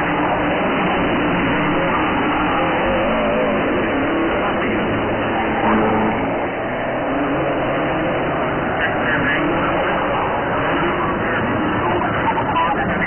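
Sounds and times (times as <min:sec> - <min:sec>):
rally car engine revving: 0:00.0 - 0:13.0.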